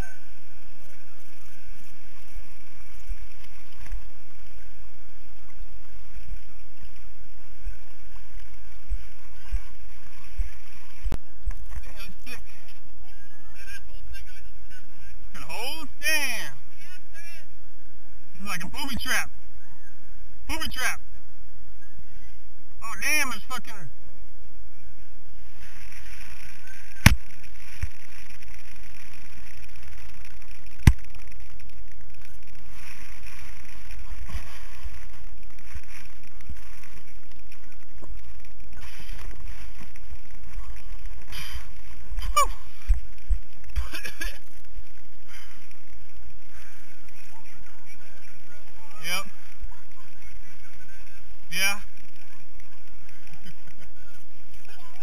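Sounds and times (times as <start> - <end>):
muffled rushing through foam: 23.8 - 55.0.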